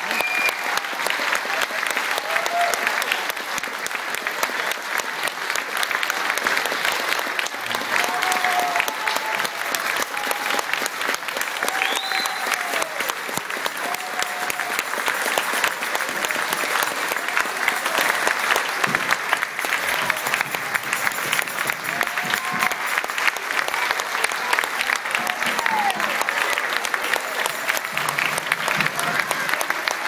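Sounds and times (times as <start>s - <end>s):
audience applauding: 0.0s - 30.0s
short calls from audience: 7.4s - 30.0s
rising whistle: 11.8s - 12.6s.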